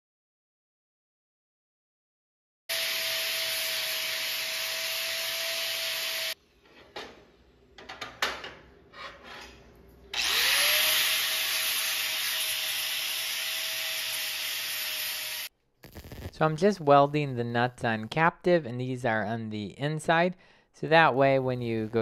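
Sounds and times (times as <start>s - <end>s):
angle grinder grinding steel: 2.7s - 6.4s, 10.2s - 16.3s.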